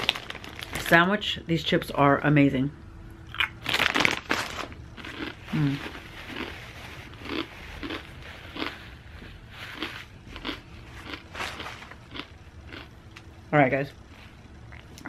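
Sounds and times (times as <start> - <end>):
chips crunching while chewed: 0.0 - 0.9, 3.3 - 8.9, 9.6 - 13.0.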